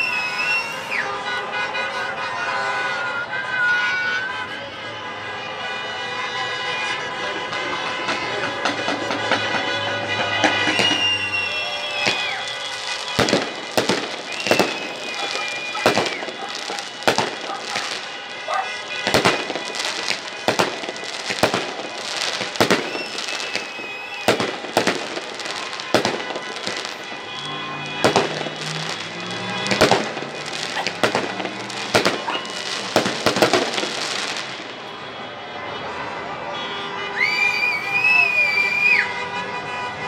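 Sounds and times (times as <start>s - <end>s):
firework whistles: 0.0s - 1.2s, 10.3s - 34.5s, 37.2s - 39.1s
fireworks bangs: 7.3s - 35.3s.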